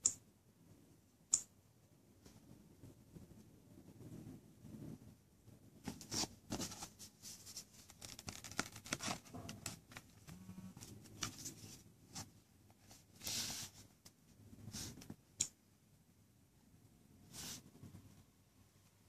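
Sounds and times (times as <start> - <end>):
hands rustling on tablet: 5.8 - 15.2.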